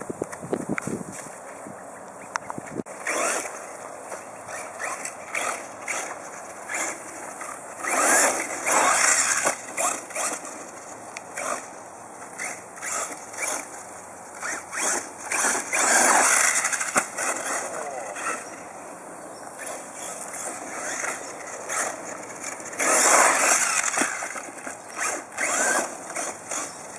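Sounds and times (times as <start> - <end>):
rc car tyres scrabbling on dirt: 2.8 - 18.8, 19.4 - 26.9.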